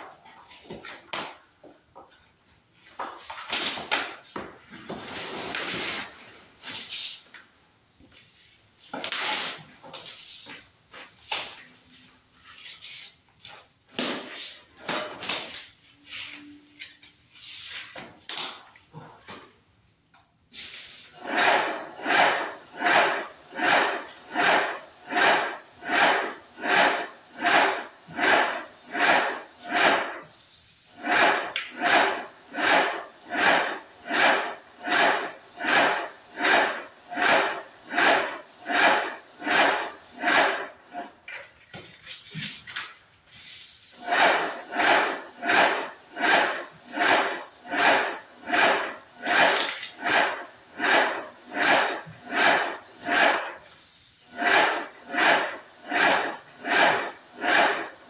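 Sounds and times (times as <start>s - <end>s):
paint sprayer hissing and pulsing: 20.5s - 41.3s, 43.3s - 58.0s
scattered irregular noises: 21.2s - 30.3s, 31.0s - 41.2s, 44.0s - 53.7s, 54.3s - 58.0s.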